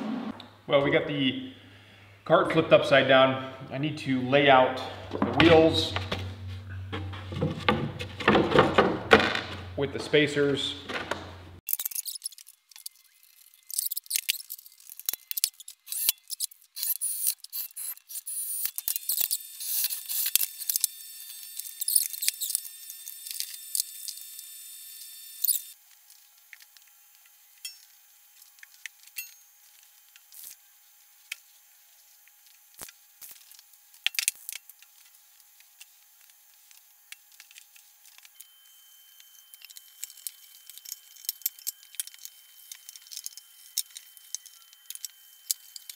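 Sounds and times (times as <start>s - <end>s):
objects clicking and clinking on cart: 7.0s - 10.2s
spray paint can hissing: 19.6s - 20.4s.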